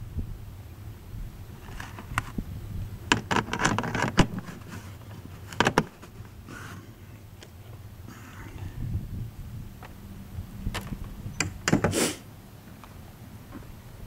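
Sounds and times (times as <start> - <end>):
handling clicks and rustles: 1.5 - 2.4, 3.0 - 8.4, 10.6 - 12.0.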